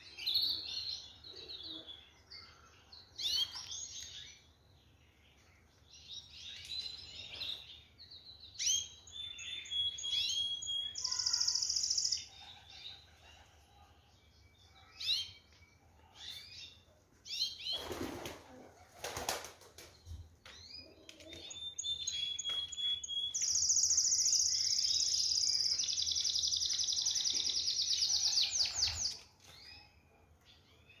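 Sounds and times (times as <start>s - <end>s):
canary singing and trilling: 6.0s - 13.6s, 20.5s - 30.0s.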